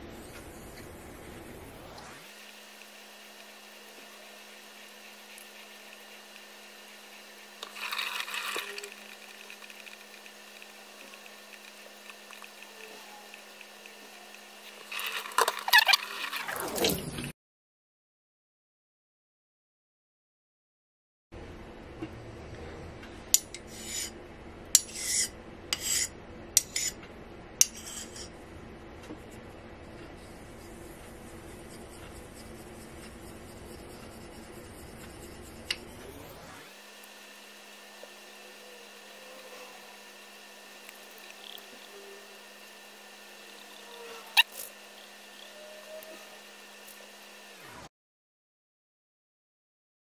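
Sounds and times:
steady low hum: 0:00.0 - 0:15.4, 0:21.4 - 0:47.8
razor scraping on whetstone: 0:23.7 - 0:24.1, 0:24.8 - 0:27.0, 0:27.6 - 0:28.3, 0:30.3 - 0:35.8.

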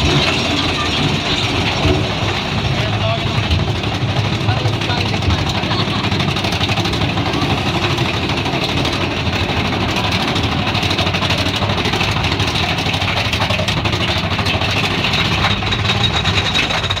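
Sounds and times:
chain lift clatter and rattle: 0:00.0 - 0:17.0.

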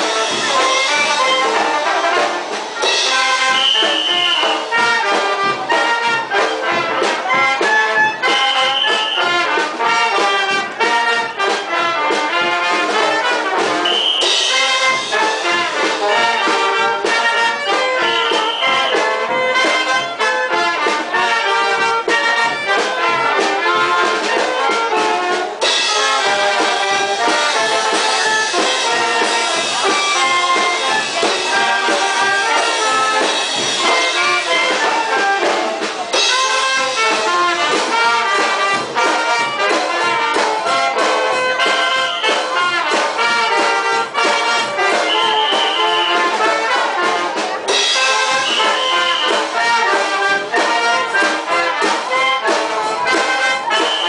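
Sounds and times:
brass band playing dance tune: 0:00.0 - 0:54.0.

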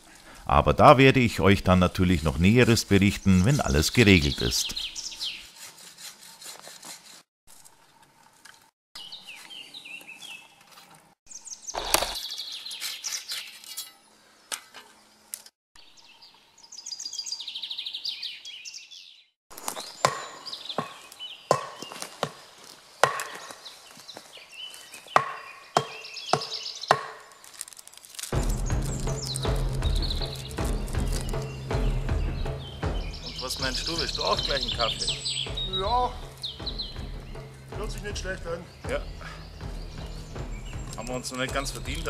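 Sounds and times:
birds chirping: 0:00.0 - 0:06.4, 0:08.6 - 0:13.6, 0:15.1 - 0:27.6, 0:28.3 - 0:42.0
axe chopping wood: 0:19.6 - 0:22.4, 0:23.0 - 0:23.6, 0:25.1 - 0:27.3.

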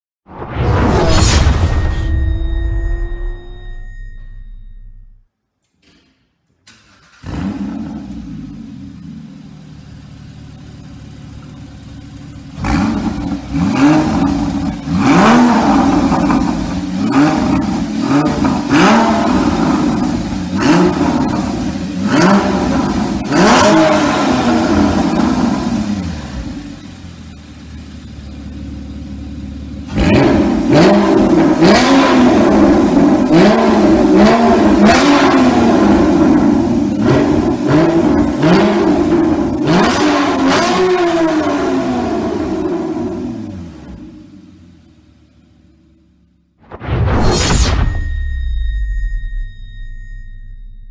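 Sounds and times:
sports car engine revving: 0:07.1 - 0:46.0.

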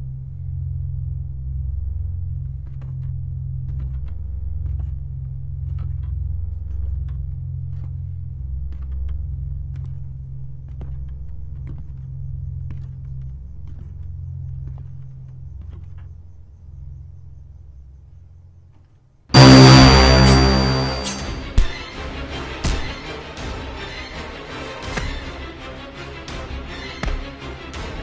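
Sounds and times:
low rumbling horror score drone: 0:19.4 - 0:21.7.

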